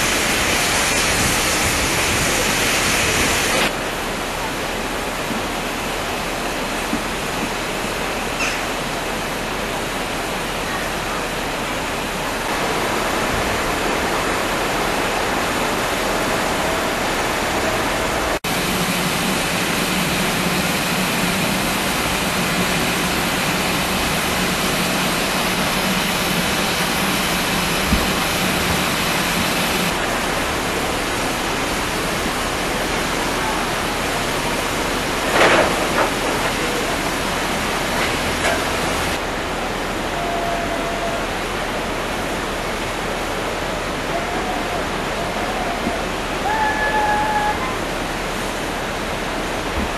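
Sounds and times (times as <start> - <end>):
steam hissing: 0.0 - 3.7, 12.5 - 39.2.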